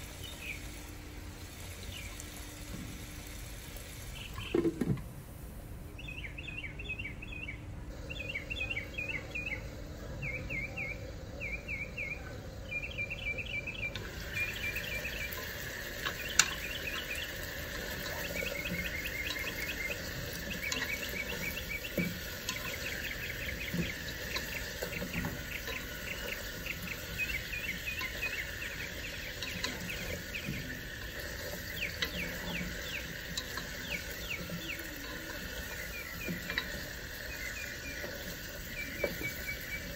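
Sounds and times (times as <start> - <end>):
faint steady hiss: 0.0 - 39.9
rapid high-pitched chirping: 8.1 - 39.9.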